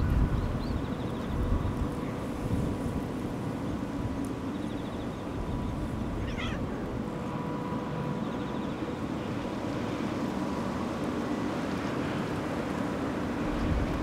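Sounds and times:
kitten meowing: 6.2s - 6.7s.

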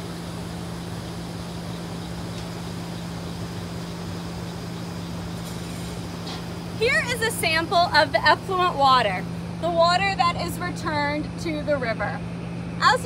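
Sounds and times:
rushing water hiss: 0.0s - 9.3s
machinery humming: 0.0s - 13.0s.

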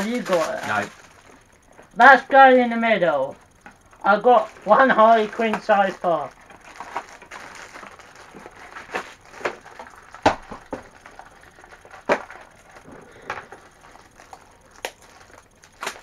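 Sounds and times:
packaging rustling and crinkling: 0.0s - 1.8s, 4.3s - 16.0s
plastic figures clicking and tapping: 3.6s - 7.1s.

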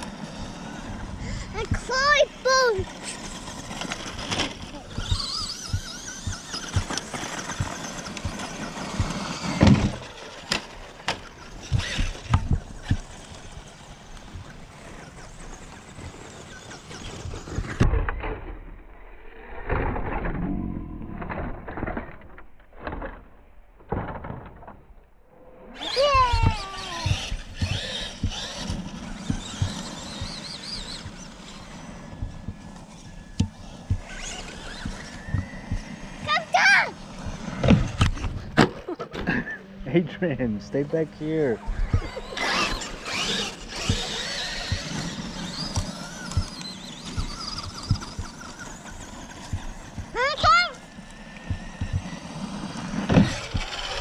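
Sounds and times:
electric motor whining: 0.0s - 18.4s, 25.7s - 54.0s
low rumbles and thumps: 2.8s - 18.7s, 25.8s - 38.9s, 41.6s - 54.0s.

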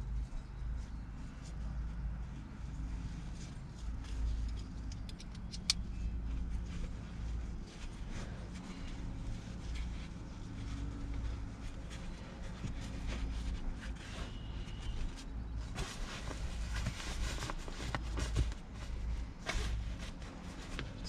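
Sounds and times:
steady low rumble: 0.0s - 21.0s
seat cover rustling: 6.0s - 21.0s.

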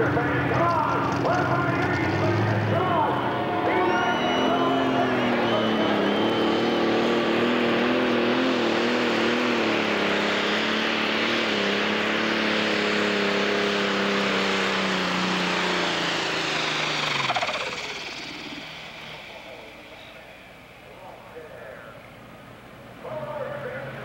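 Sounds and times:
diesel engine running under load: 0.0s - 24.0s
turbo hiss and whine: 16.6s - 23.8s.

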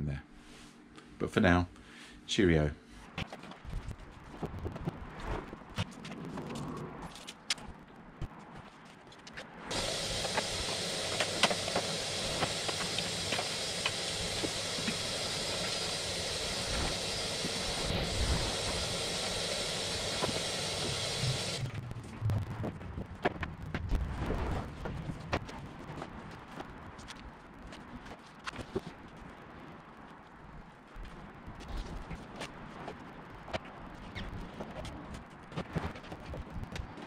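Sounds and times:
knocks and footsteps: 7.5s - 21.7s
shop vacuum running: 9.7s - 21.6s.

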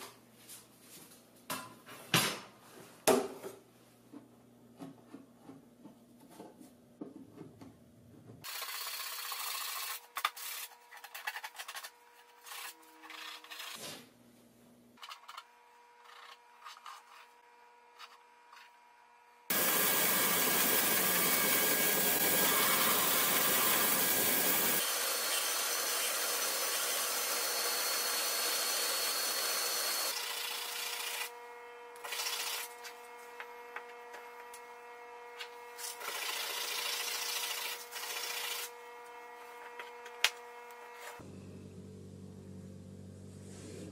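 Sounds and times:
band saw cutting plywood: 19.5s - 34.6s.

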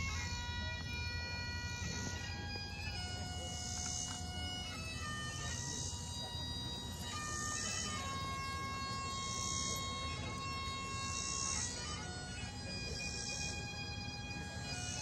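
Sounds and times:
bagpipes playing slow tune: 0.0s - 15.0s.

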